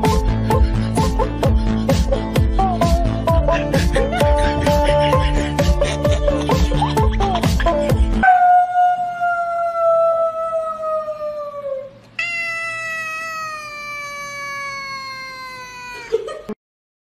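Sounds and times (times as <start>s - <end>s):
cat meowing: 12.2s - 16.1s.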